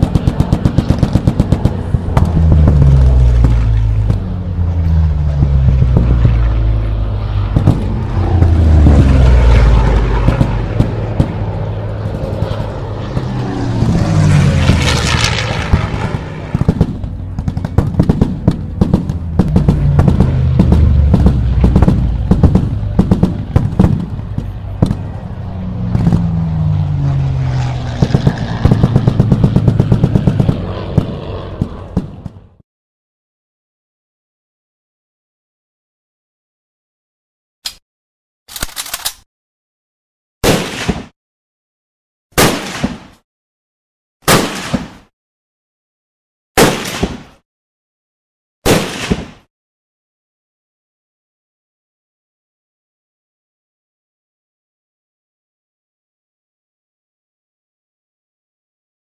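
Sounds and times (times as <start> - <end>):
rapid small-arms and machine-gun fire: 0.0 - 4.3, 9.8 - 13.5, 14.4 - 25.2, 27.9 - 32.4, 40.4 - 41.1, 42.4 - 43.2, 44.2 - 45.1, 46.6 - 47.4, 48.6 - 49.5
warplane engines passing overhead: 0.0 - 32.6.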